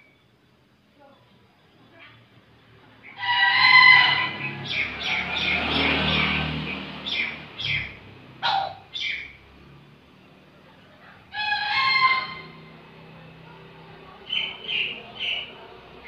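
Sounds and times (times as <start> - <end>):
rooster crowing: 3.2 - 5.2, 11.3 - 12.6.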